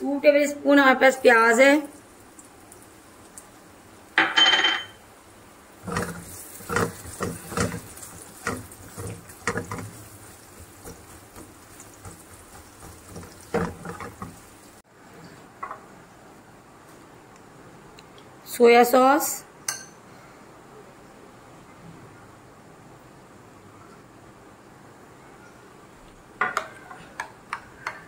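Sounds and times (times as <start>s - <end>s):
onions sizzling in oil: 1.1s - 4.2s, 5.6s - 14.9s
spatula scraping and tapping pan: 5.8s - 14.8s.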